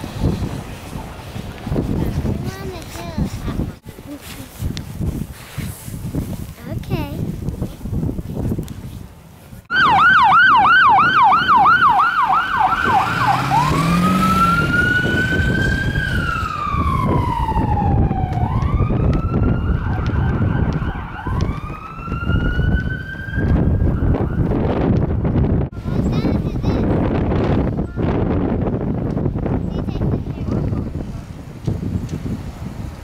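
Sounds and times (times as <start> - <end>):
ambulance siren: 9.7 - 24.8.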